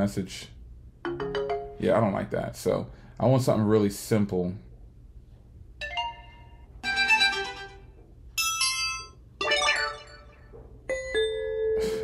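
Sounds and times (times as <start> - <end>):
phone notification chimes: 8.4 - 11.8.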